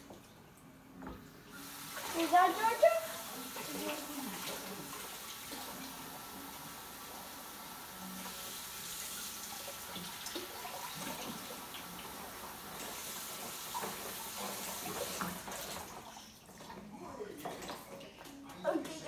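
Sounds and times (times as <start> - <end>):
tap water running into sink: 1.0 - 16.7.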